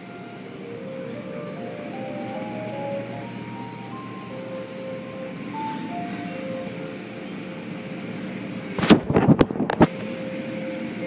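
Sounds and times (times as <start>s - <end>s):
faint music: 0.0s - 8.8s
car wash machinery and water: 0.0s - 11.0s.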